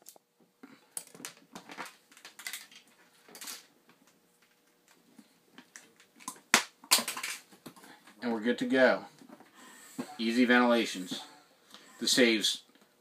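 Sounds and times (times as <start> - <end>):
plastic clicks and rustles: 0.9 - 5.0, 5.6 - 7.9.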